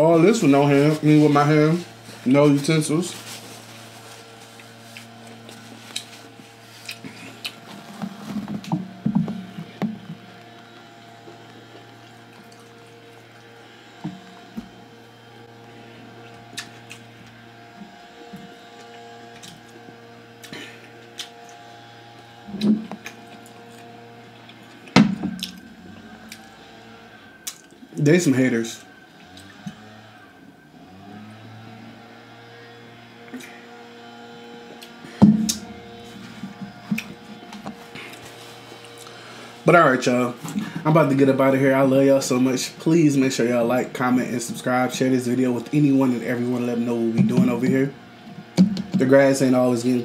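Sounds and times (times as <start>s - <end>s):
chewing: 6.8s - 7.6s
steady low hum: 33.0s - 50.0s
loud clunk: 35.2s - 35.7s.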